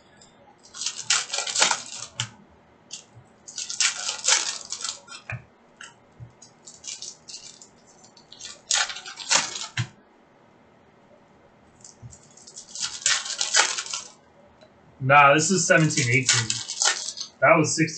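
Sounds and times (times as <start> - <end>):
foil pack crinkling: 0.6 - 2.3, 2.9 - 5.3, 6.4 - 9.9, 11.8 - 14.2, 15.5 - 17.4
cards being shuffled: 0.7 - 2.3, 2.9 - 5.3, 6.5 - 9.9, 11.8 - 14.2, 15.6 - 17.4.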